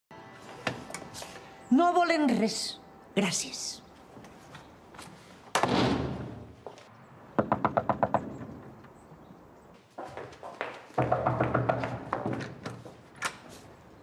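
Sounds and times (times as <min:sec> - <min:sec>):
knocking on a door: 0:07.4 - 0:08.4, 0:11.0 - 0:12.5.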